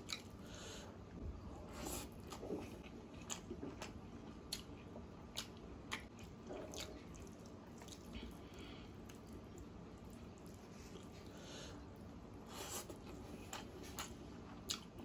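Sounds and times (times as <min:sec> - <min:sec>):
squishy eating by hand: 0:02.0 - 0:11.3
wet chewing: 0:02.0 - 0:11.3.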